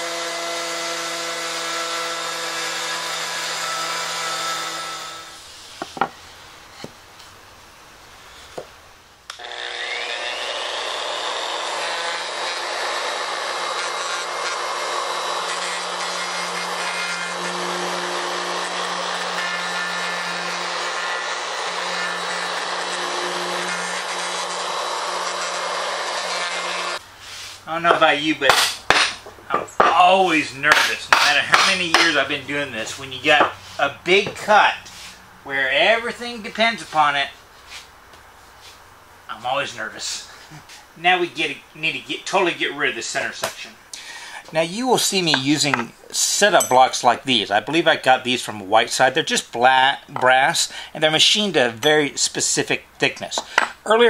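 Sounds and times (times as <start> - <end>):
router cutting wood: 0.0 - 5.5, 9.3 - 27.0.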